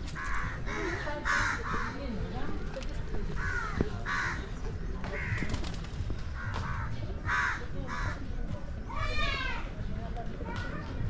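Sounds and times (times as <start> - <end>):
crows cawing: 0.1 - 2.1, 3.3 - 4.5, 5.2 - 5.5, 6.4 - 8.2.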